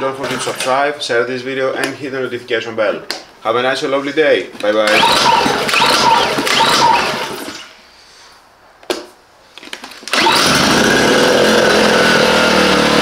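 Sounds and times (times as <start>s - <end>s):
generator engine running: 4.9s - 7.6s, 10.1s - 13.0s.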